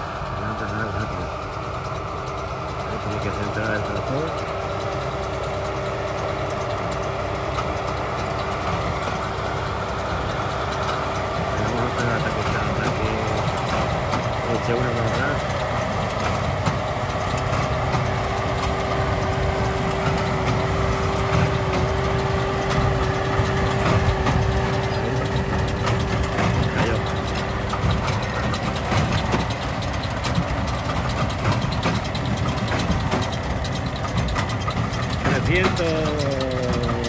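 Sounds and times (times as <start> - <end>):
tractor engine running: 0.0 - 37.0
steady whine: 5.6 - 37.0
baler mechanism clicking: 11.6 - 37.0.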